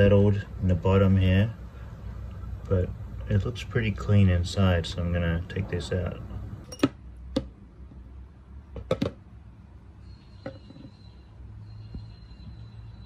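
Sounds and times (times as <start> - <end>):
bolt knocking on plastic tub: 8.8 - 9.2
faint high whine: 9.5 - 13.0.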